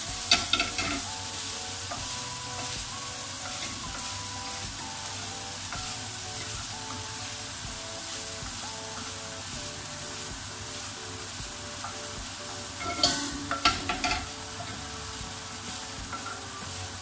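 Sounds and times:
food sizzling in a frying pan: 0.0s - 17.0s
utensil clinking against pan: 0.3s - 1.1s, 12.8s - 14.8s.

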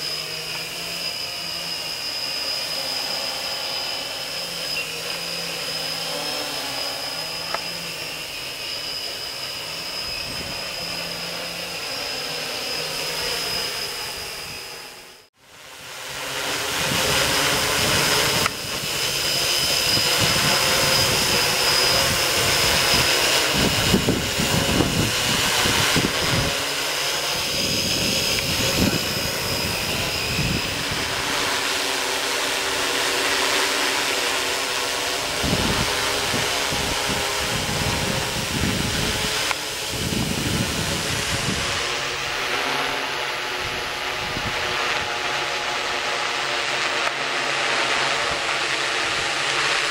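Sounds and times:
drone propellers buzzing whine: 0.0s - 49.9s
wind rumbling on microphone: 9.9s - 11.4s, 16.7s - 26.7s, 27.3s - 31.5s, 35.2s - 45.4s.

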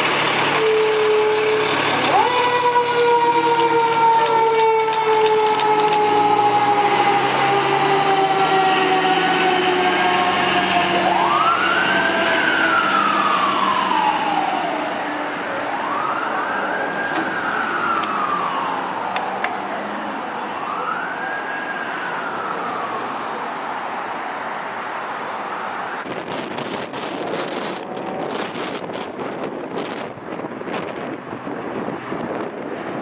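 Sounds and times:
truck engine: 0.0s - 21.4s, 22.0s - 33.0s
fire engine siren wailing: 0.0s - 33.0s.

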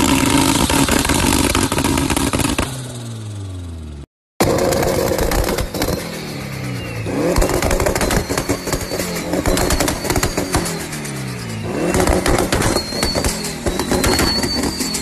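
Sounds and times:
exhaust popping and banging: 0.0s - 2.8s, 4.4s - 6.3s, 7.1s - 11.0s, 11.6s - 15.0s
car engine revving: 4.4s - 15.0s
turbo whistle: 6.7s - 15.0s.

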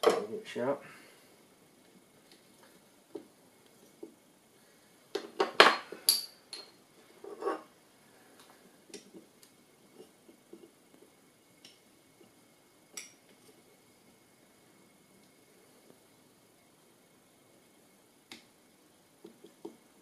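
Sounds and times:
sharpening stones clinking: 6.0s - 6.8s.

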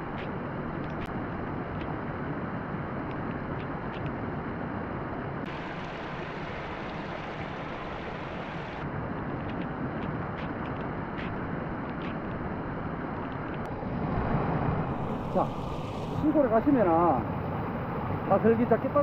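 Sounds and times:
water spilling over weir: 5.5s - 8.8s.

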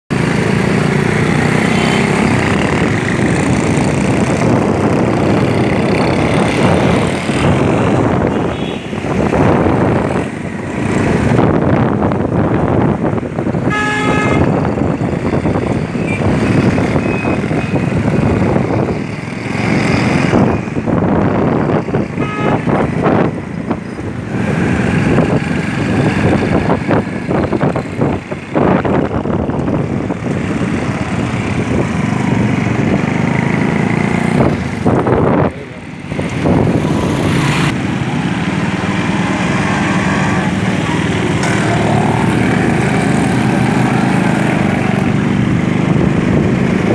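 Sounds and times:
street traffic din: 0.1s - 46.9s
vehicle horns tooting: 8.2s - 9.0s, 13.6s - 14.7s, 16.0s - 17.9s, 22.2s - 23.0s.

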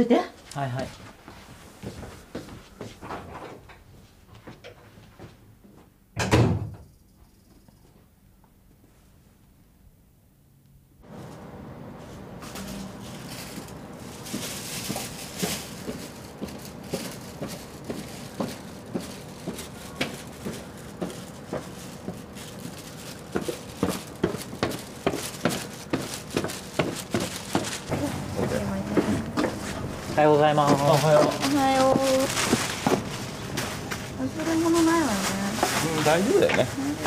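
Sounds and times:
footsteps down outdoor staircase: 0.4s - 6.0s, 13.6s - 36.6s.

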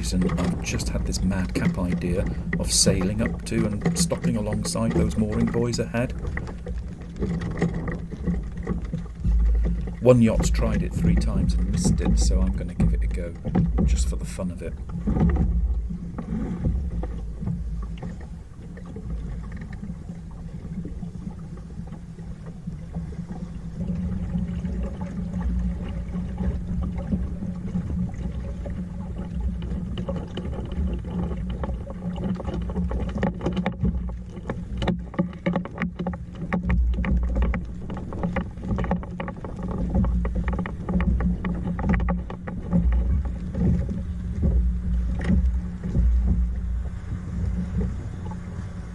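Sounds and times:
wind buffeting microphone: 0.0s - 35.0s
knocks and splashes: 0.0s - 48.9s
water slapping against hull: 0.0s - 48.9s.

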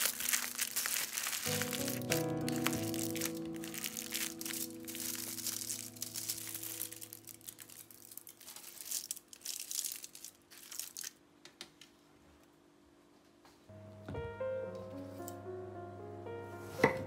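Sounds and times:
aluminium foil crinkling: 0.0s - 11.2s.

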